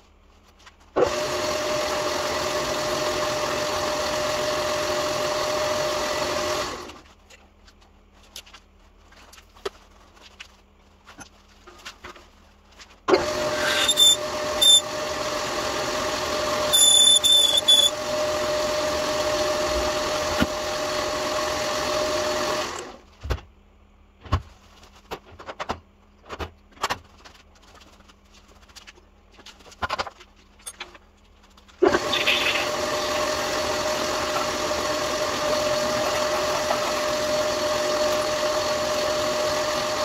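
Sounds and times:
cutter squealing: 13.2 - 15.1, 16.2 - 19.4, 31.9 - 40.0
metal lathe humming: 13.2 - 22.8, 31.9 - 40.0.

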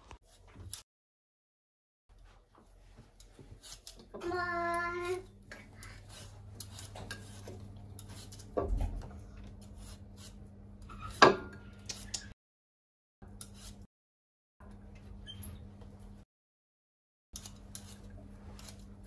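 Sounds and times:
peeler scraping a potato: 3.1 - 12.3, 13.3 - 13.9, 17.4 - 19.0.

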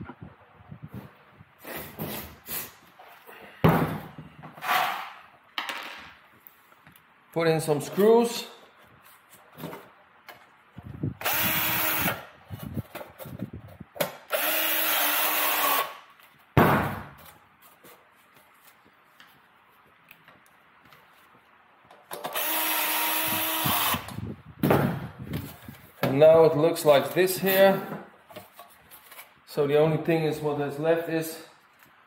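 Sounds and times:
power drill driving screws into metal: 11.2 - 12.3, 14.1 - 16.0, 22.2 - 24.2.

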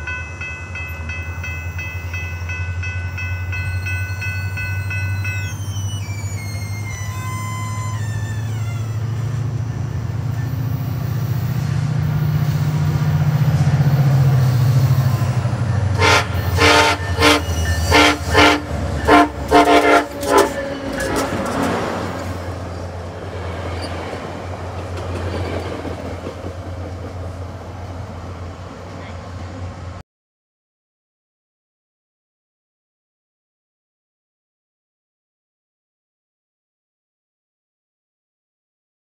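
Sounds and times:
train rumbling: 0.0 - 30.0
train horn short blasts: 15.9 - 21.3.

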